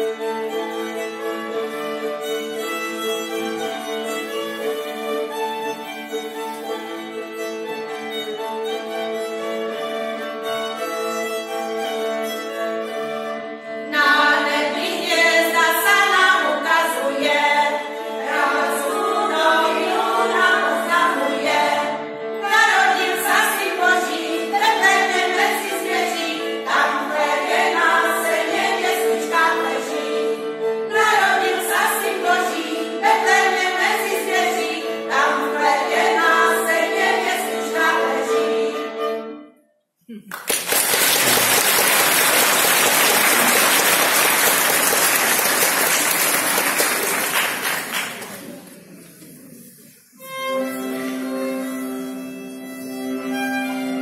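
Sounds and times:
violin playing a tune: 0.0s - 39.4s, 50.1s - 54.0s
women singing: 13.9s - 39.0s
held accompaniment: 40.1s - 54.0s.

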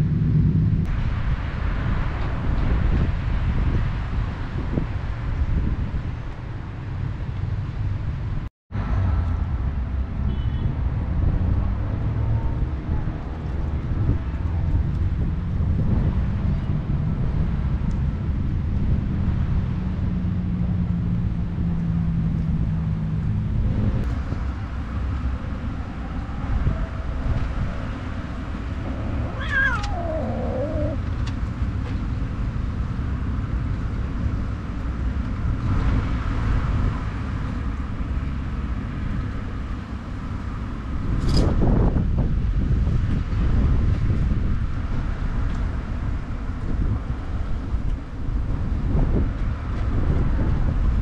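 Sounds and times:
wind noise on microphone: 0.0s - 51.0s
cat meowing: 28.8s - 31.0s.

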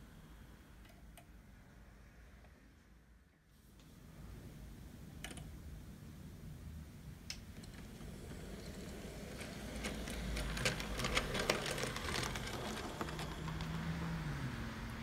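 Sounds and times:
wheels clicking on track: 7.3s - 15.0s
model train rumbling: 7.4s - 15.0s.

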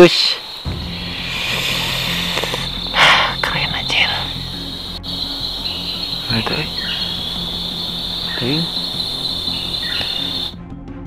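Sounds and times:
crickets trilling: 0.0s - 10.6s.

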